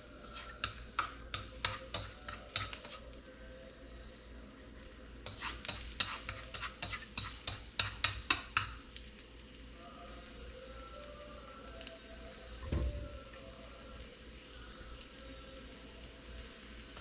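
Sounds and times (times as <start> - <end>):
garlic sizzling in oil: 0.0 - 3.4, 4.7 - 17.0
chopsticks scraping a wok: 0.2 - 3.1, 5.2 - 7.6.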